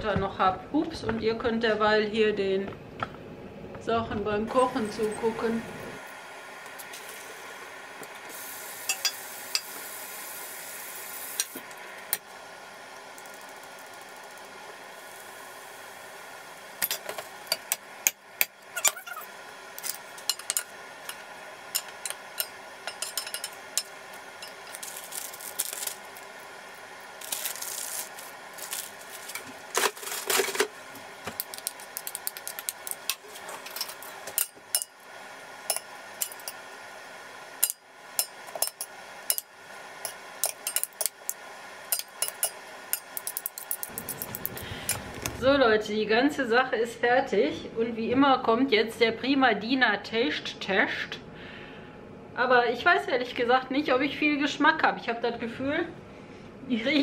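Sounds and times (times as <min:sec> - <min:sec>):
oil hissing: 0:08.3 - 0:12.0
utensils clacking in a frying pan: 0:08.8 - 0:09.8, 0:19.8 - 0:26.0, 0:31.4 - 0:35.0, 0:35.7 - 0:36.6, 0:37.6 - 0:44.4.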